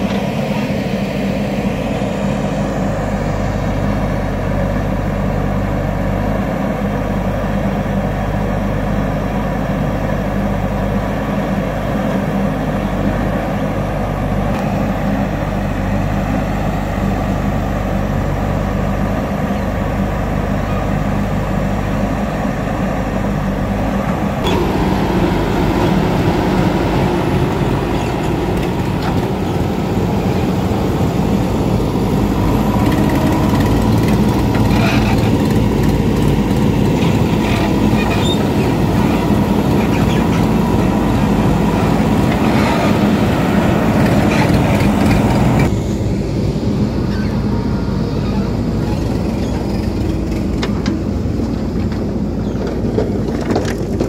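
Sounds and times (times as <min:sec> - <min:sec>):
diesel engine under load: 0:00.0 - 0:54.0
knocks of earth and stones: 0:50.1 - 0:54.0.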